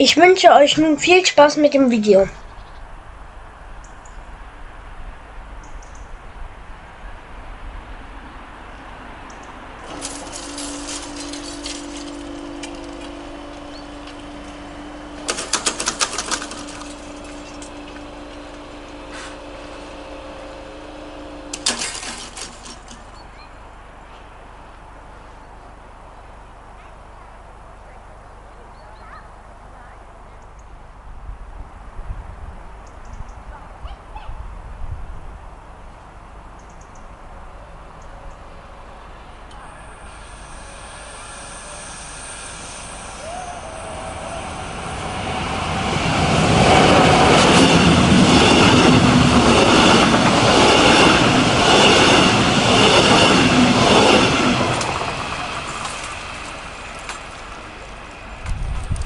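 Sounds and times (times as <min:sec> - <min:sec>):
outdoor rushing noise: 0:06.4 - 0:25.3, 0:37.2 - 0:59.0
level crossing warning tone: 0:09.7 - 0:23.6, 0:37.6 - 0:58.4
barrier grilles rattling: 0:09.8 - 0:19.6, 0:21.2 - 0:23.4.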